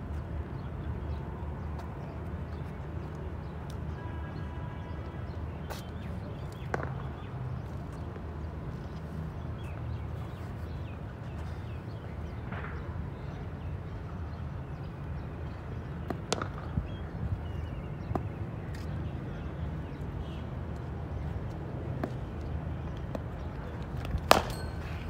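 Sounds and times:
cricket ball knocks: 24.0 - 24.6.

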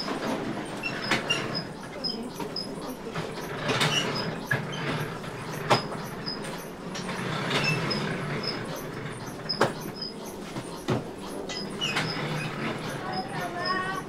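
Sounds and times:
machinery rumbling: 0.0 - 14.0.

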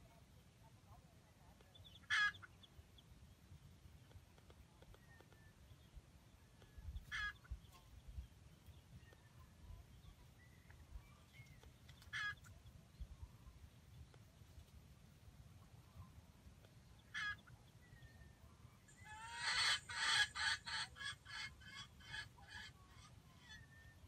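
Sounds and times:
junglefowl calls: 1.8 - 2.6, 7.0 - 7.6, 12.0 - 12.5, 17.0 - 17.6, 18.9 - 24.0.

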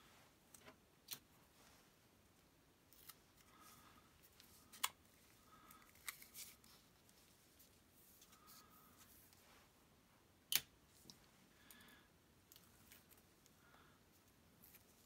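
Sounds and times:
soft paper rustling: 2.9 - 9.8, 12.6 - 15.0.

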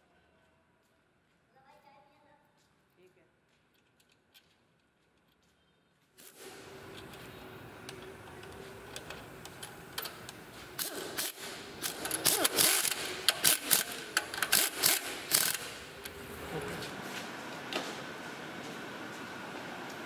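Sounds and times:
pneumatic screwdriver clicking: 9.0 - 16.2.

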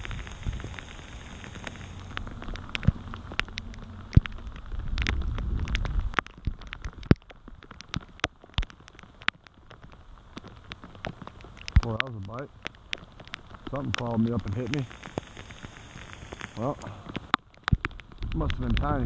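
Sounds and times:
low rumble: 0.0 - 6.7
heavy rain: 0.0 - 19.0
raindrops tapping near microphone: 0.0 - 19.0.

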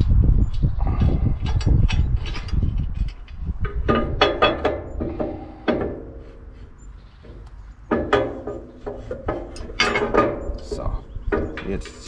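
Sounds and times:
metal parts clinking: 1.4 - 5.1, 7.3 - 12.0.

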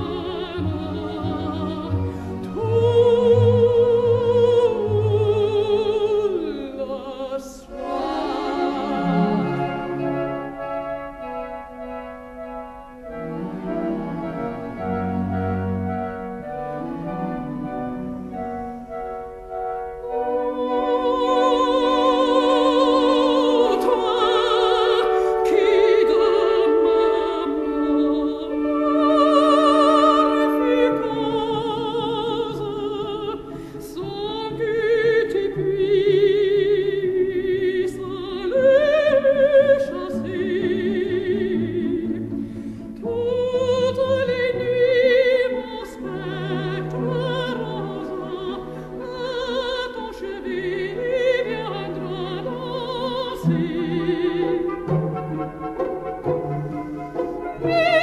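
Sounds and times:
operatic singing: 0.0 - 11.1, 20.0 - 58.0
orchestral accompaniment: 0.0 - 58.0.

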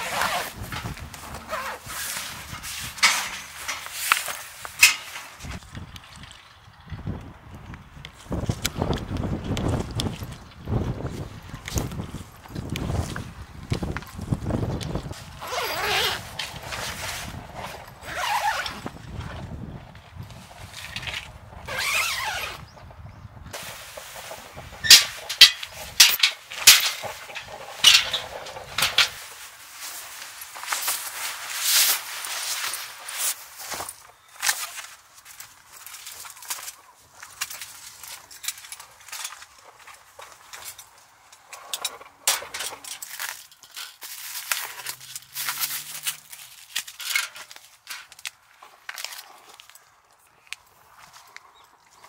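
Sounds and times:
rustling and scraping: 0.0 - 5.6, 9.6 - 19.6, 23.6 - 52.0
rustling scrape: 0.0 - 5.6, 15.1 - 18.9, 23.6 - 35.0.

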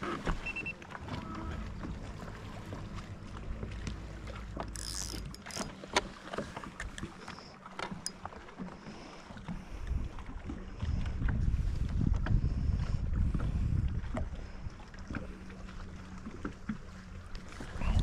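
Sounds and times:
fishing reel clicks: 4.7 - 5.8
wind rumble on microphone: 9.4 - 18.0.

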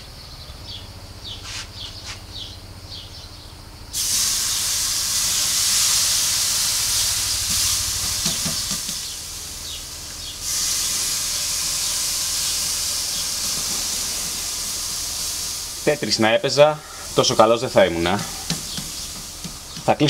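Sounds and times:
steaks sizzling on a grill: 4.0 - 20.0.

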